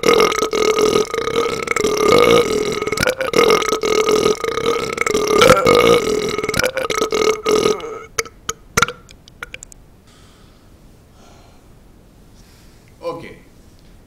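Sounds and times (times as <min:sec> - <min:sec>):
man burping: 0:00.0 - 0:09.6.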